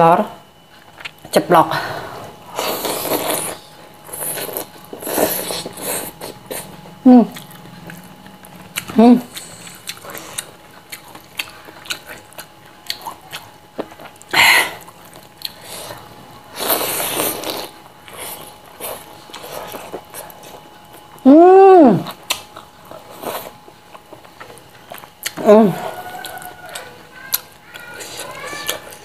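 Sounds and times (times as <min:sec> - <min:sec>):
wet chewing and lip smacking: 0:02.9 - 0:16.1, 0:22.0 - 0:29.0
hummed vocal sound: 0:25.4 - 0:26.5.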